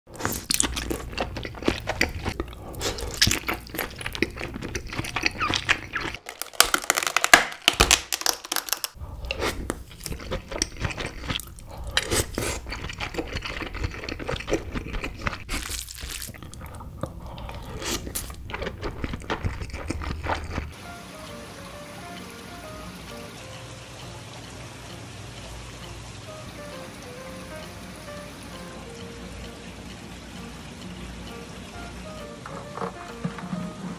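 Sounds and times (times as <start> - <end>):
wet chewing: 0.1 - 20.8
crab shell clicking: 0.4 - 15.5.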